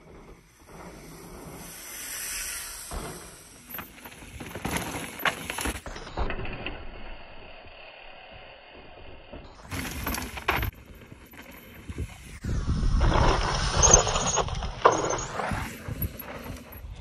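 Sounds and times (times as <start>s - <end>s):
bike tyres hissing on loose dirt: 0.0s - 10.9s, 11.6s - 17.0s
bike clattering over rock: 2.9s - 7.0s, 9.4s - 12.1s.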